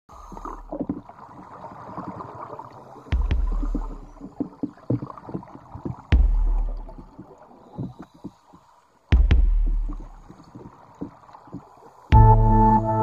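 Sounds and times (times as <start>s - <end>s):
scuba exhaust bubbles rumbling: 0.1s - 8.4s
underwater gurgling clicks and pops: 0.1s - 12.3s.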